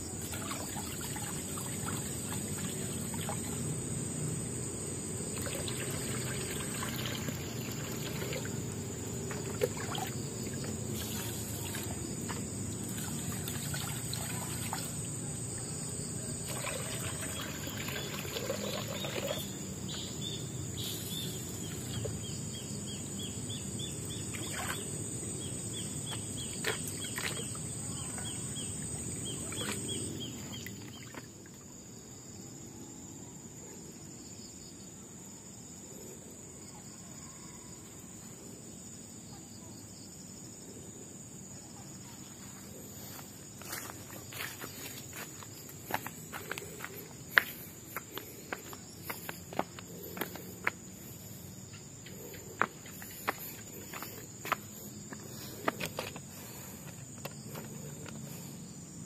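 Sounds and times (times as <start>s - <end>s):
stream trickling and splashing: 0.0s - 22.4s, 23.5s - 32.0s, 42.2s - 58.5s.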